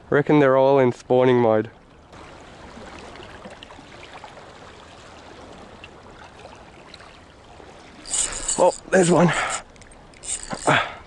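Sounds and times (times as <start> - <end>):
faint ticks: 8.0 - 10.9.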